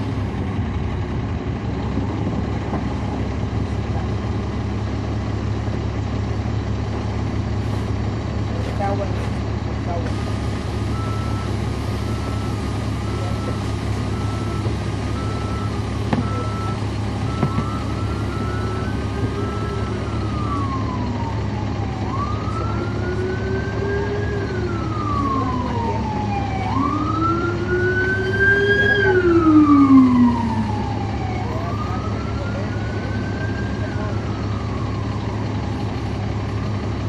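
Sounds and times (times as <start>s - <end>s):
bus engine droning: 0.0s - 37.0s
emergency siren wailing: 9.9s - 37.0s.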